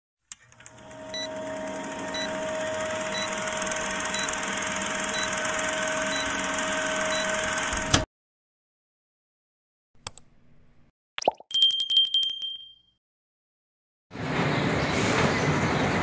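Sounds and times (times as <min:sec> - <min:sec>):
film projector clatter: 0:00.3 - 0:08.0.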